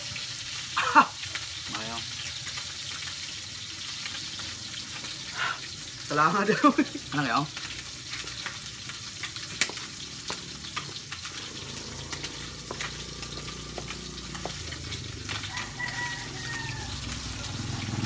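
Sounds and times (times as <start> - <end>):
rooster crowing: 15.3 - 17.8.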